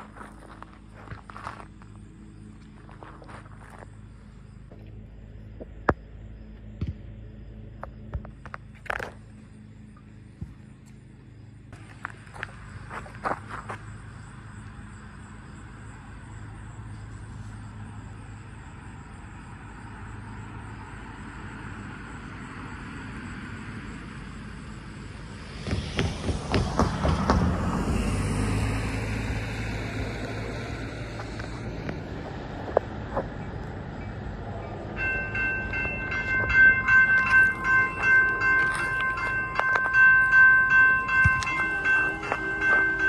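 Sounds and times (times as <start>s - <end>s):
road traffic hum: 0.0s - 43.0s
vehicle passing close by: 11.8s - 43.0s
sharp knocks: 25.6s - 27.6s.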